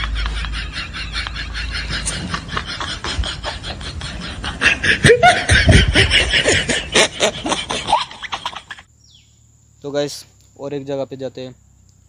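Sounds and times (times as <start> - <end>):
person laughing: 0.0 - 8.8.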